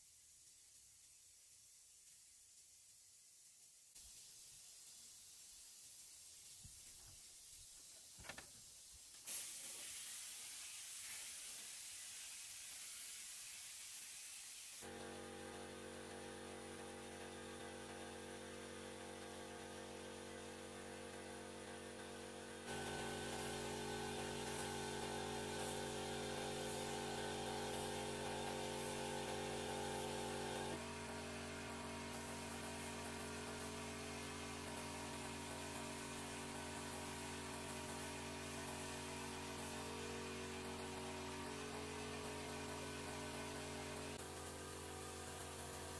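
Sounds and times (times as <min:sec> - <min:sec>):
paint spray gun hissing: 0:00.0 - 0:45.9
air compressor motor hum: 0:14.8 - 0:45.9.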